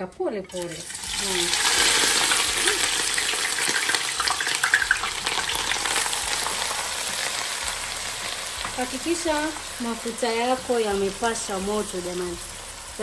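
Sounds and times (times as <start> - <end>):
onions sizzling in hot oil: 0.5 - 13.0.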